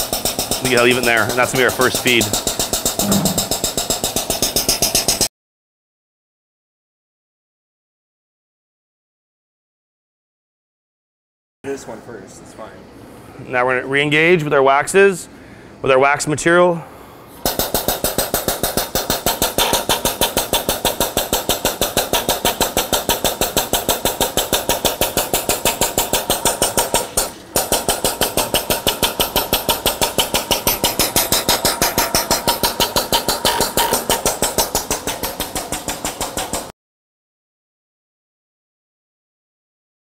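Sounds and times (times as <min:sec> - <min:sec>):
diaphragm pump chugging: 0:00.0 - 0:05.2, 0:17.5 - 0:36.7.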